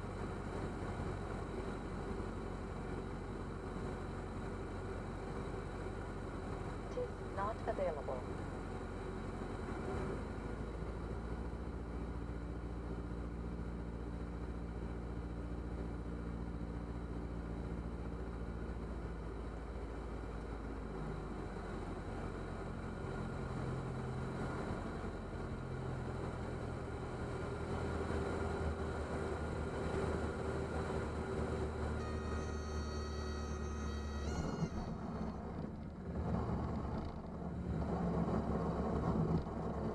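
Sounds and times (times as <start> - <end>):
aircraft engine and propeller droning: 25.2 - 38.6
high steady tone: 32.0 - 35.5.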